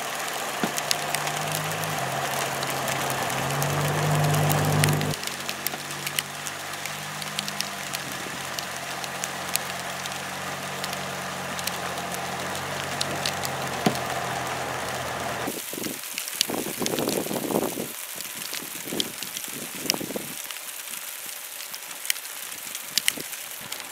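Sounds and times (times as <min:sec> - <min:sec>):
sleet ticking on pavement: 0:00.0 - 0:23.9
vehicle engine idling: 0:00.3 - 0:15.5.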